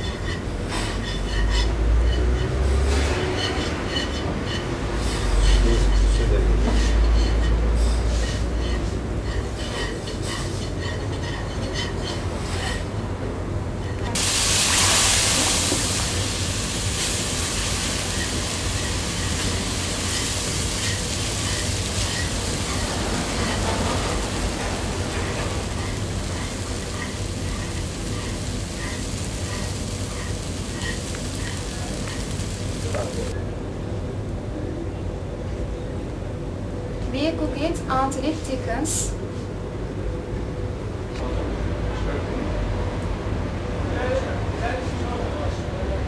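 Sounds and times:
spatula scraping frying pan: 0:00.0 - 0:12.9, 0:17.8 - 0:32.8
low kitchen rumble: 0:00.0 - 0:39.0
milk sizzling in a frying pan: 0:14.1 - 0:33.4.

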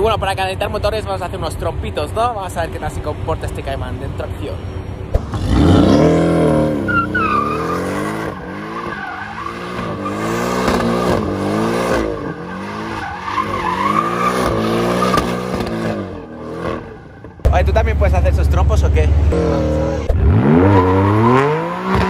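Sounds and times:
car engine revving: 0:04.9 - 0:22.0
tyres squealing on asphalt: 0:05.5 - 0:17.7, 0:19.3 - 0:22.0.

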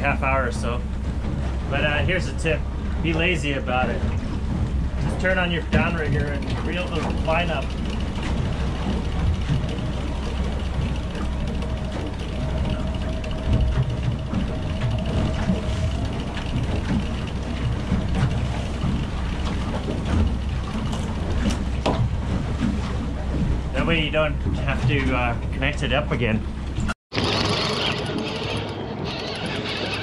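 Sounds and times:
boat rumble: 0:00.0 - 0:30.0
water: 0:00.0 - 0:30.0
electric winch motor whirring: 0:04.1 - 0:23.3, 0:27.2 - 0:30.0.

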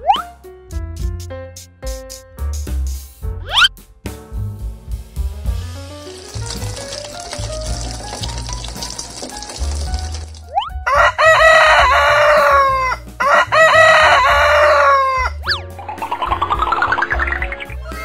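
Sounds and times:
background music: 0:00.0 - 0:18.0
rooster crowing: 0:10.9 - 0:15.4
rising run of tones: 0:15.8 - 0:17.8.

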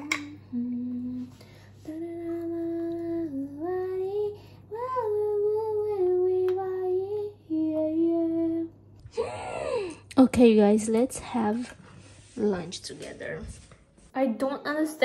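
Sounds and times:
woman singing wordless tune: 0:00.0 - 0:08.8.

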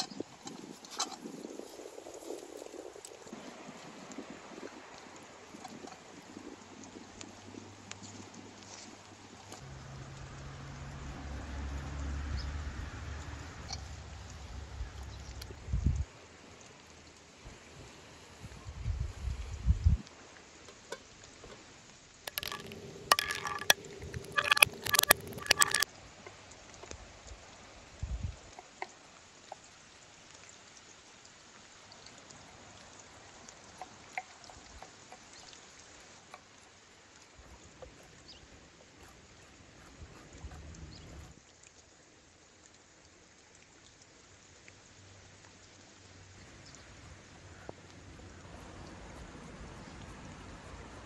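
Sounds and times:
shallow stream flowing: 0:00.0 - 0:18.3, 0:22.3 - 0:26.8, 0:28.6 - 0:51.0
small clicks: 0:22.3 - 0:25.8
walnuts clattering on wooden board: 0:22.3 - 0:25.8.

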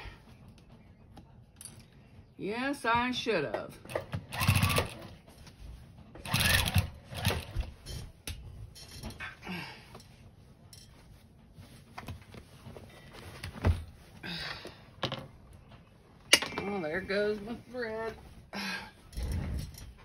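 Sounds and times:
sewing machine stitching: 0:03.9 - 0:05.2, 0:06.2 - 0:07.7.

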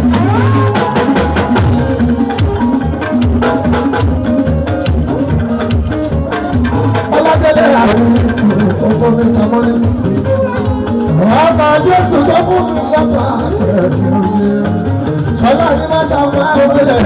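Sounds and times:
electric guitars: 0:00.0 - 0:17.0
person singing: 0:05.3 - 0:17.0.

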